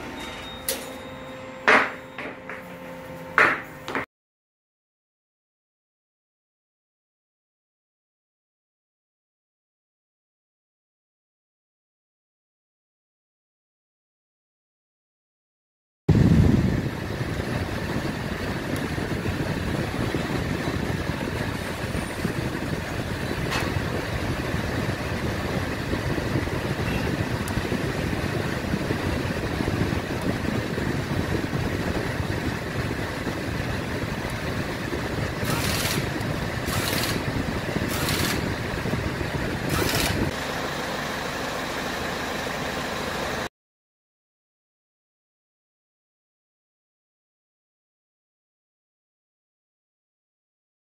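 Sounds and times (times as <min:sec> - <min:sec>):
car fan blowing air: 0:16.1 - 0:43.5
steady hum: 0:16.1 - 0:43.5.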